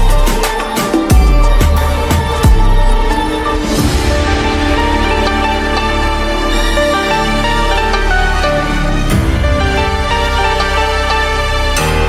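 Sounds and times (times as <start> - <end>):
deep bass sound: 1.1 - 12.0.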